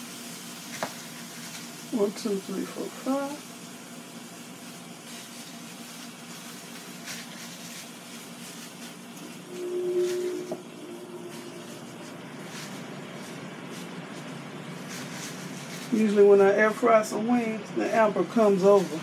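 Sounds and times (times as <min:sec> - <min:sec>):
hot grill hissing: 0:00.0 - 0:09.6
short low hum: 0:09.2 - 0:13.4.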